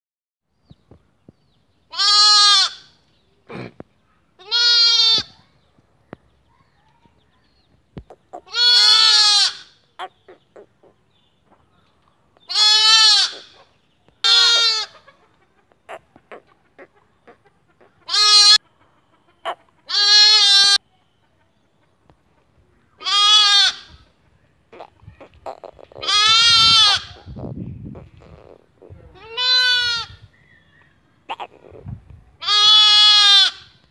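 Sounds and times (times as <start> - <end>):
lambs bleating: 1.9 - 2.9, 4.4 - 5.3, 8.4 - 9.7, 12.5 - 13.6, 14.2 - 15.0, 18.0 - 18.6, 19.9 - 20.8, 23.0 - 23.9, 24.8 - 27.2, 29.2 - 30.2, 32.4 - 33.7.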